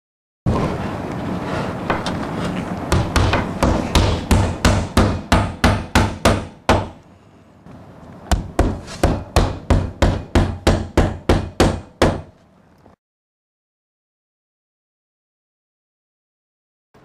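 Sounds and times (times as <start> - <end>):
hammer striking nails: 2.9 - 7.0, 8.3 - 12.4.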